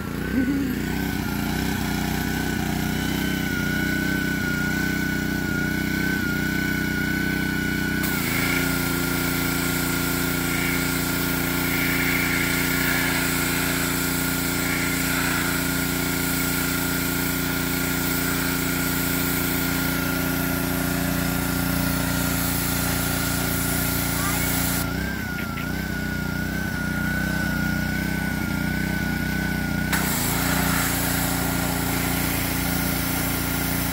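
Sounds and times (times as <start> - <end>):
pressure washer engine whine: 0.0 - 33.9
water spray hiss: 8.0 - 24.8, 29.9 - 33.9.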